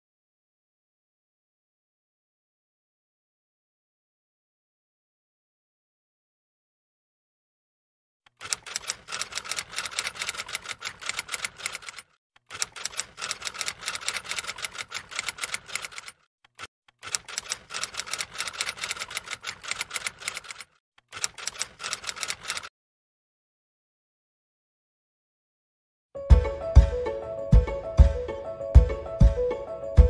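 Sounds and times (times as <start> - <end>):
typewriter keys clacking: 8.3 - 22.7.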